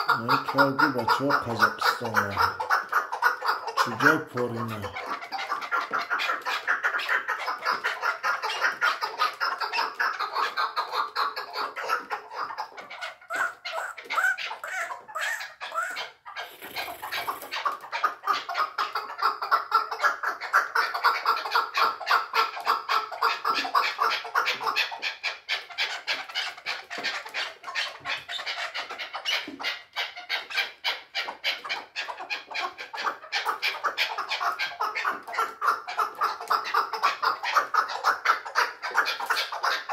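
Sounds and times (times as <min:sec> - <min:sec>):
partridge chattering call: 0:00.0 - 0:18.4.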